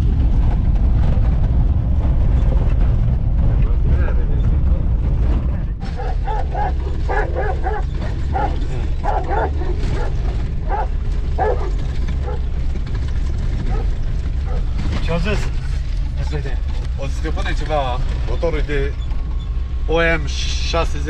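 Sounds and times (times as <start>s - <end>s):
diesel engine droning: 0.0s - 21.0s
large dogs barking: 5.8s - 14.8s.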